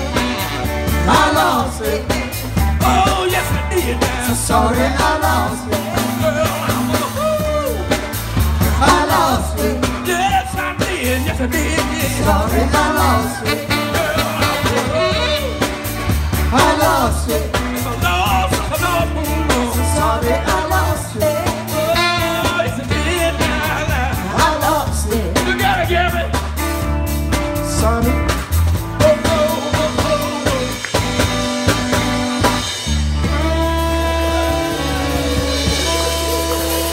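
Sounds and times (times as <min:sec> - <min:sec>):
people singing: 0:00.0 - 0:15.7, 0:16.4 - 0:26.2
bass line: 0:00.0 - 0:36.9
drum kit: 0:00.0 - 0:36.9.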